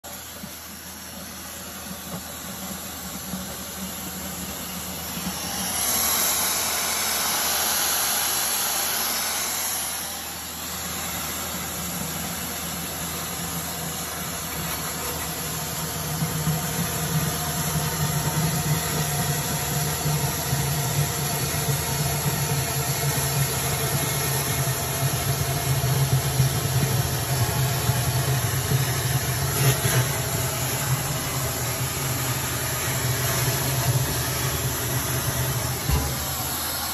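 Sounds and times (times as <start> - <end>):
air hiss: 5.4 - 10.8.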